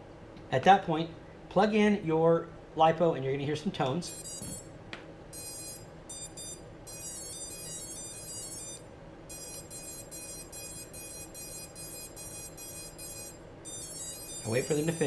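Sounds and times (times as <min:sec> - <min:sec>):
short high beeps: 0:04.1 - 0:04.6, 0:05.4 - 0:15.0
stepped melodic motor beeps: 0:04.1 - 0:04.7, 0:05.3 - 0:15.0.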